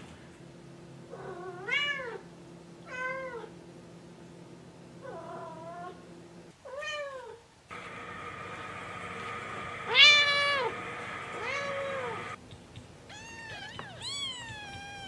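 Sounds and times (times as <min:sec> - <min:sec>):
cat meowing: 0:13.1 - 0:15.0.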